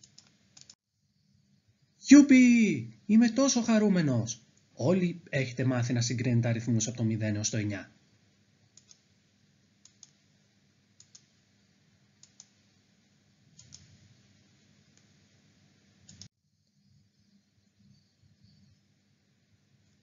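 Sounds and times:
faint room hiss: 0.0 - 20.0
soft double clicks: 11.0 - 11.3, 12.2 - 12.6, 13.6 - 14.0.

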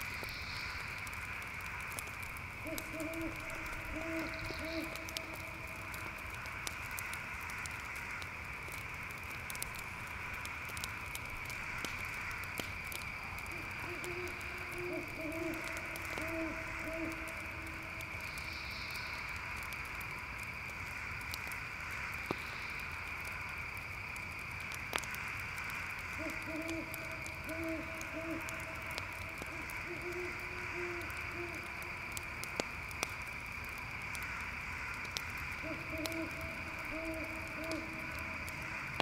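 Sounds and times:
campfire crackling: 0.0 - 39.0
crickets chirping: 0.0 - 39.0
owl hooting: 2.6 - 5.6, 13.5 - 18.5, 26.1 - 28.8, 29.4 - 31.7, 35.6 - 38.2.

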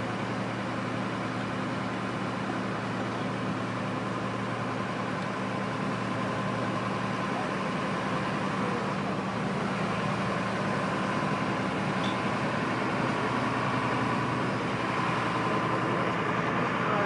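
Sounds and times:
fire engine running: 0.0 - 17.0.

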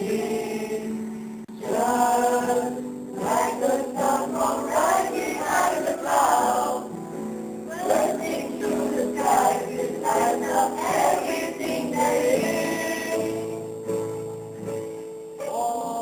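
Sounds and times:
mixed choir singing: 0.0 - 13.8.

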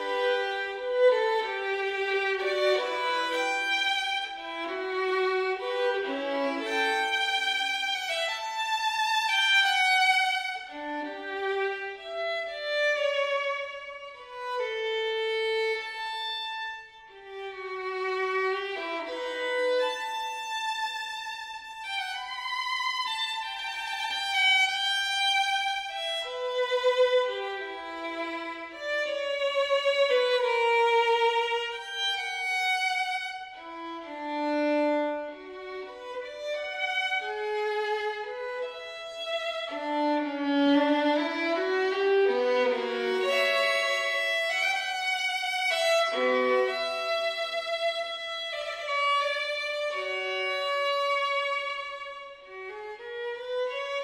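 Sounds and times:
violin melody with vibrato: 0.0 - 54.0.

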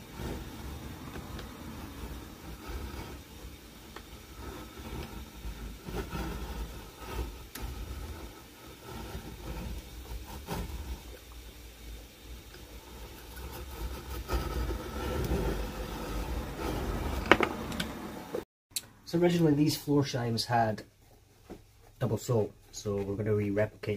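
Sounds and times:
low steady hum: 0.0 - 23.9.

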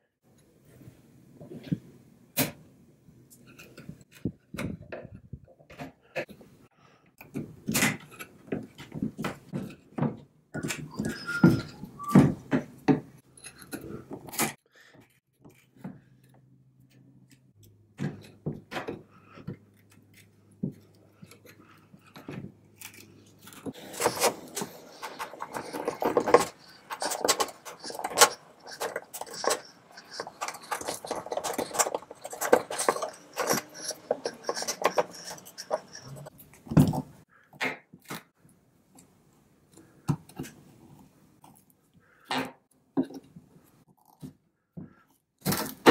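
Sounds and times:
metal clicks and scrapes of prying tools: 13.2 - 14.6, 15.4 - 37.2.

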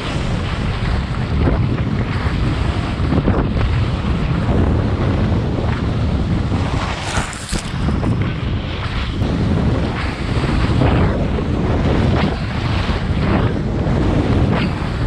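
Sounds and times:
wind buffeting microphone: 0.0 - 15.0
skis scraping over snow: 5.2 - 10.8.

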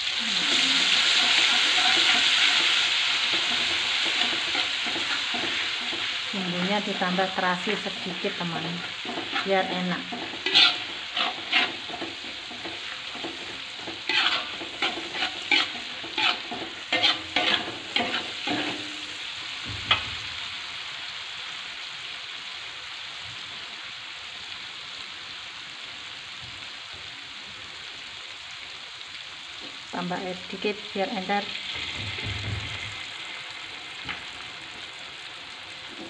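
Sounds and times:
paste sizzling in oil: 0.0 - 36.0
metal spatula clinking and scraping: 8.9 - 19.1.

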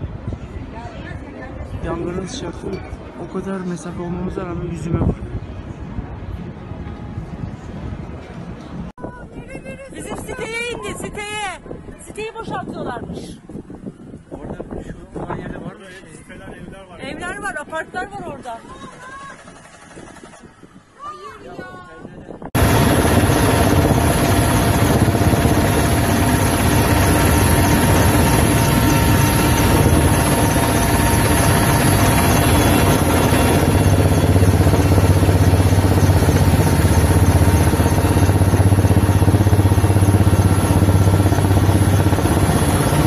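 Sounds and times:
helicopter engine and rotor drone: 19.0 - 20.7, 22.5 - 43.0.

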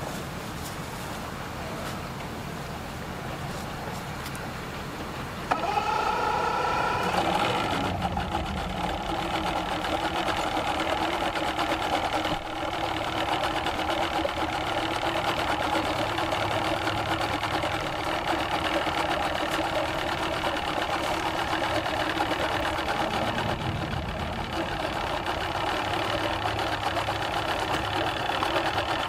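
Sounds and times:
outboard motor idling: 4.1 - 29.0.

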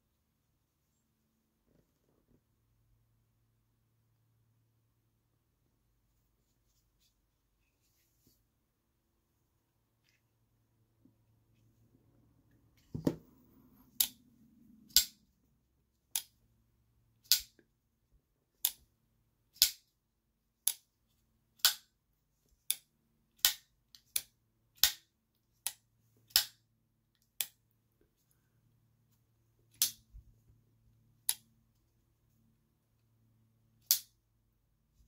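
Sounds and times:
folding knife clicking open and shut: 14.9 - 15.2, 17.2 - 17.6, 25.6 - 26.6, 33.8 - 34.2.

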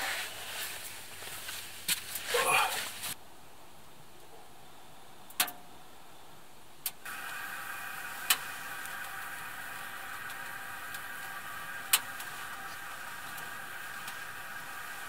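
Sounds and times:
water heating hiss with whine: 0.0 - 3.2, 6.2 - 15.0
wood stove fire crackling: 0.0 - 3.2, 5.2 - 5.6, 6.7 - 15.0.

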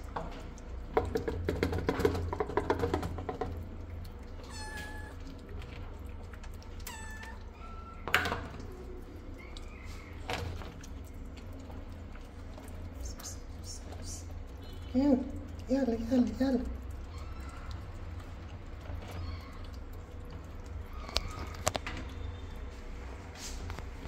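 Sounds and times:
cat meowing: 4.4 - 5.3, 6.8 - 8.1.

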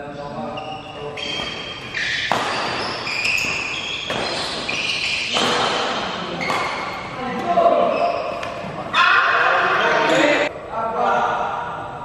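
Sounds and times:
shoes squeaking on court: 0.4 - 8.8
racket striking shuttlecock: 1.3 - 7.0.

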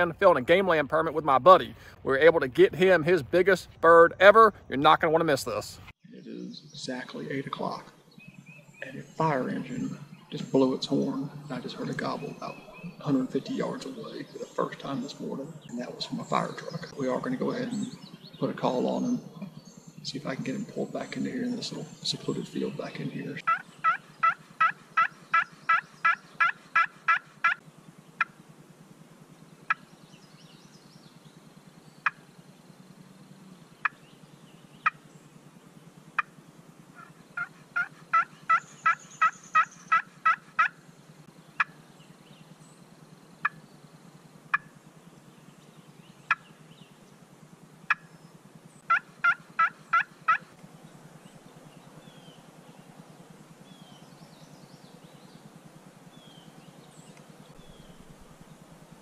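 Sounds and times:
turkey call clucks: 23.4 - 27.6, 36.2 - 40.8, 44.5 - 44.8, 47.9 - 48.1, 48.9 - 50.5
turkey call yelps: 23.4 - 27.6, 36.9 - 40.8, 48.9 - 50.5.

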